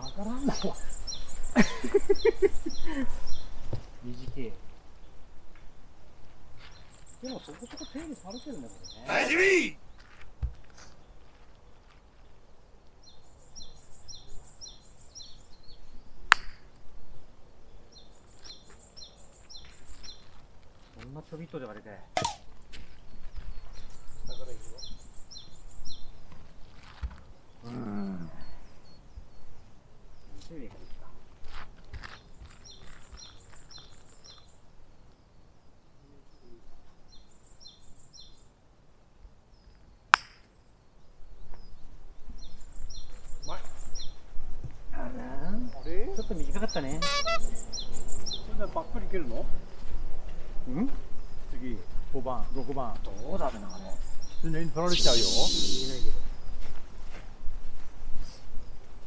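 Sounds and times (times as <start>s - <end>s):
bird chirping: 0.0s - 31.2s, 32.0s - 38.6s, 39.5s - 56.8s
bird calling high notes: 7.2s - 9.8s, 46.6s - 48.0s, 54.8s - 56.3s
golf club striking ball: 16.3s - 16.6s.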